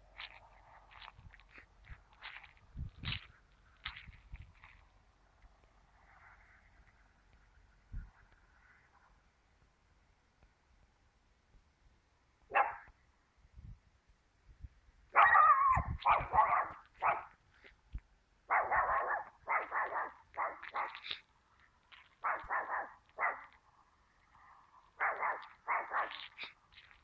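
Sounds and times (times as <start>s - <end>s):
dog barking: 12.5s - 12.9s, 15.1s - 17.4s, 18.5s - 21.2s, 22.2s - 23.6s, 25.0s - 26.5s.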